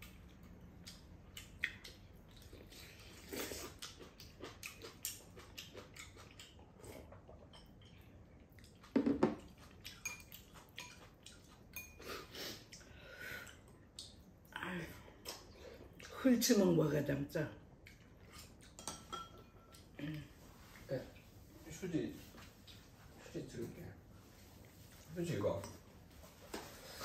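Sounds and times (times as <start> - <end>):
people slurping noodles: 2.6 - 3.8.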